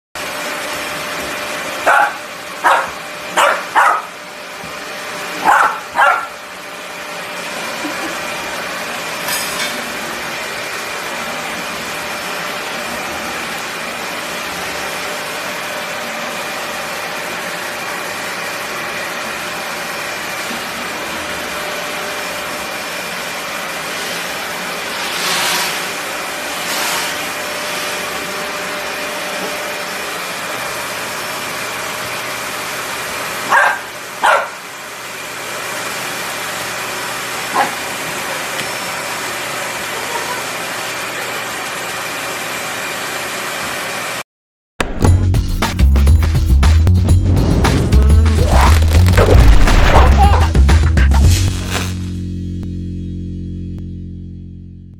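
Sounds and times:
vacuum cleaner whining: 0:00.2 - 0:44.2, 0:48.3 - 0:52.2
puppy barking: 0:01.8 - 0:04.2, 0:05.4 - 0:06.4, 0:33.5 - 0:34.7, 0:37.5 - 0:37.9, 0:49.9 - 0:50.5.

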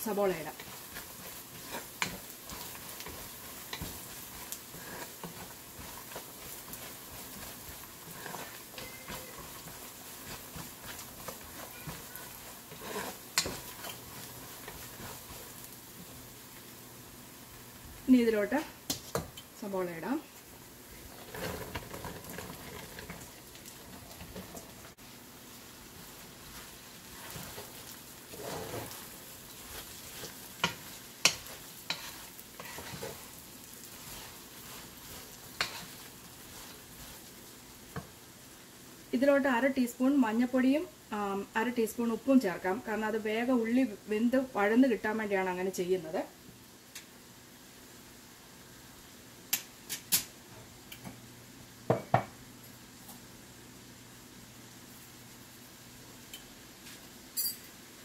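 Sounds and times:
onions sizzling in hot oil: 0:00.0 - 0:58.0
metal spoon clinking on a pot: 0:57.4 - 0:57.7.

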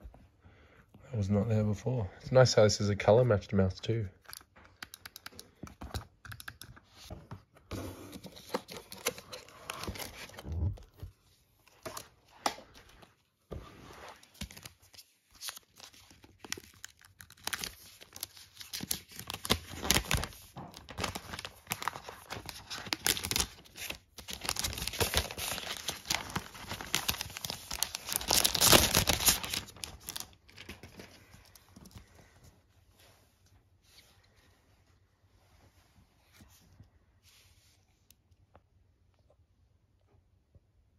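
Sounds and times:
paper wrap rustling and crinkling: 0:06.9 - 0:32.4.

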